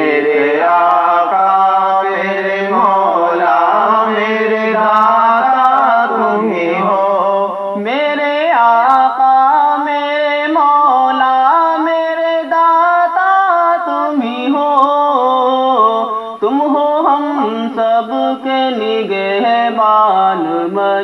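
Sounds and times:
man singing a devotional hymn: 0.0s - 21.0s.

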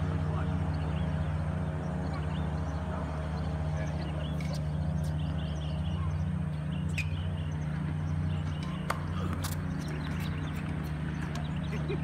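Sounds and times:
birds chirping: 0.0s - 12.0s
steady low hum: 0.0s - 12.0s
tennis ball pops: 8.6s - 10.2s.

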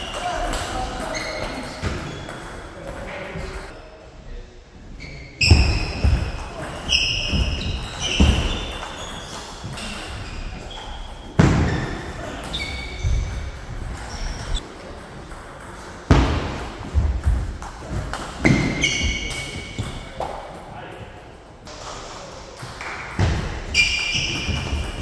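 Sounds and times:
shoes squeaking on sports floor: 0.0s - 3.8s, 5.0s - 14.6s, 18.4s - 20.2s, 23.5s - 25.0s.

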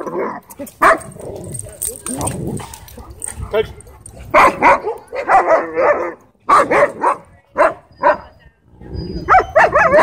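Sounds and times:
dog barking: 0.8s - 1.2s, 3.0s - 8.3s, 9.3s - 10.0s.

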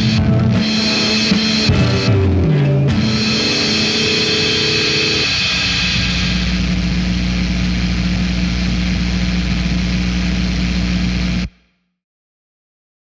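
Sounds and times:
loud low humming drone: 0.0s - 11.4s.

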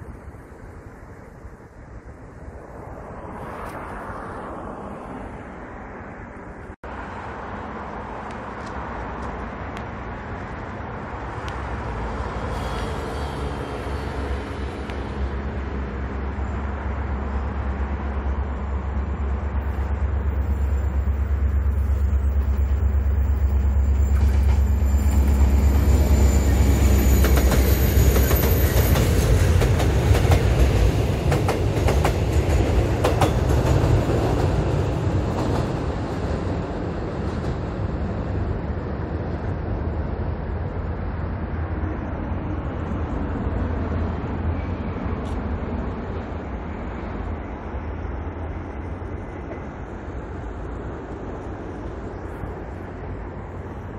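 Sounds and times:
diesel locomotive rumble: 12.5s - 41.6s
train wheels clacking on rail joints: 21.6s - 36.4s.

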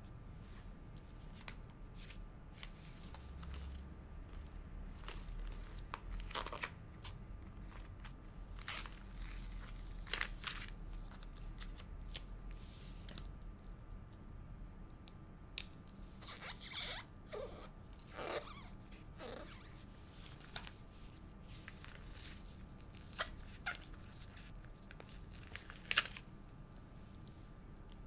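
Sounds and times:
stickers peeling and rustling: 1.3s - 12.3s
sticker sheet crinkling: 2.6s - 12.2s.

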